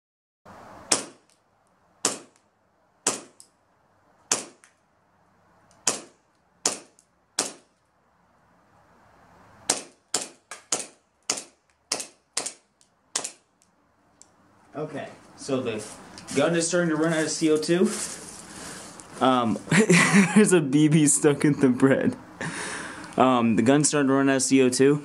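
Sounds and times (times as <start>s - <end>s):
airsoft pistol shots: 0.9s - 1.3s, 2.0s - 2.4s, 3.0s - 3.4s, 4.3s - 4.7s, 5.8s - 7.7s, 9.7s - 13.4s.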